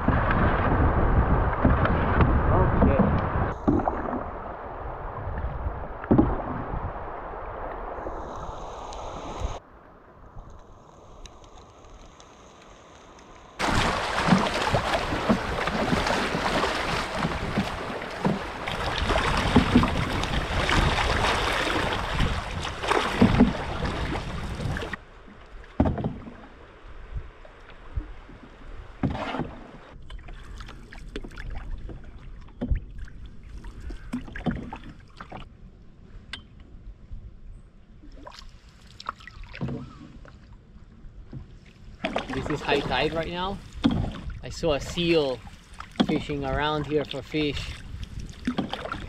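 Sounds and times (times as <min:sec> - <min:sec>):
paddle strokes splashing: 0:00.0 - 0:09.6, 0:13.6 - 0:35.5, 0:41.2 - 0:49.0
knocks on canoe: 0:13.6 - 0:20.9, 0:22.9 - 0:23.6, 0:25.8 - 0:26.3, 0:43.8 - 0:44.3
loud steady rushing water: 0:13.6 - 0:25.0.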